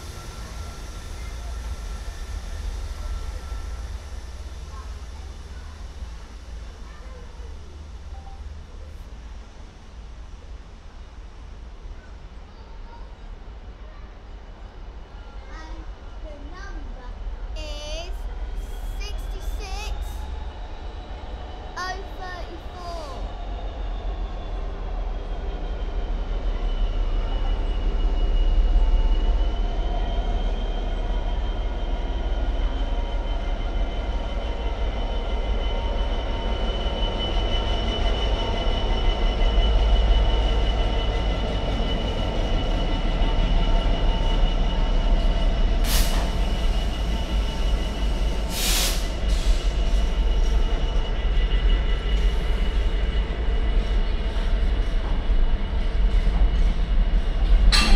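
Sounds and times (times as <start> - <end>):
diesel locomotive engine running: 0.0 - 57.9
wheels squealing on rails: 18.2 - 57.9.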